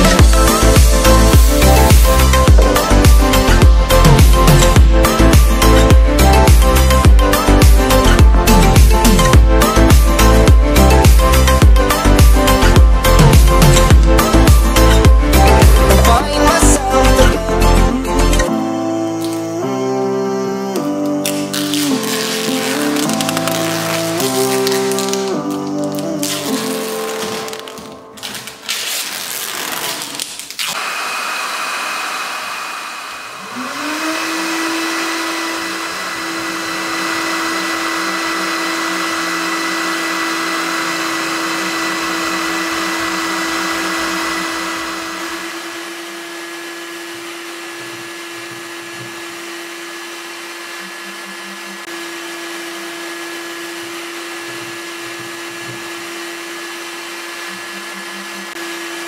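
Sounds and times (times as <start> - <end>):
heat gun fan whining and blowing: 30.7 - 59.0.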